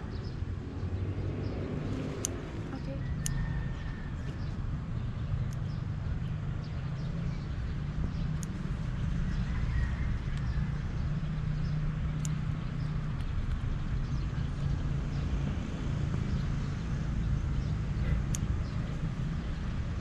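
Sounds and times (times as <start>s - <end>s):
distant traffic rumble: 0.0s - 20.0s
scissors snipping leaves: 1.8s - 3.4s, 11.9s - 13.7s, 18.1s - 18.6s.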